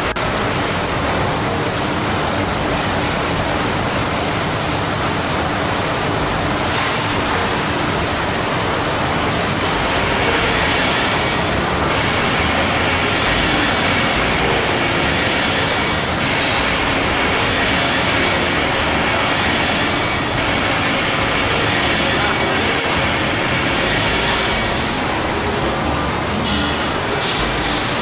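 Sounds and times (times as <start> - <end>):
faint high whines: 24.1 - 28.0
industrial machine rushing hiss: 24.1 - 28.0.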